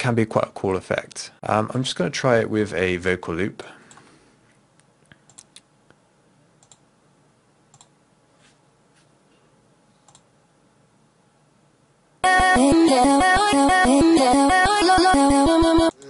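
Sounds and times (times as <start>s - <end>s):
computer mouse clicks: 5.2s - 5.7s, 6.6s - 6.8s, 7.7s - 7.9s, 10.0s - 10.3s.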